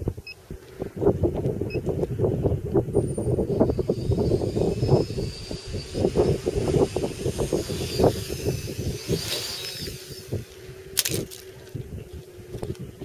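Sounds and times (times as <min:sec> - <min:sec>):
drone motors whining: 0:00.0 - 0:13.0
wind buffeting microphone: 0:00.0 - 0:13.0
drone crashing onto ice: 0:11.0 - 0:11.5.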